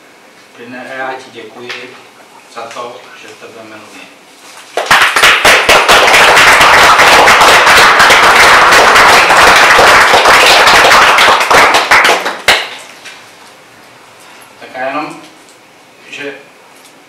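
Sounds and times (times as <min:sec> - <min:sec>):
audience applauding: 0:04.8 - 0:12.8.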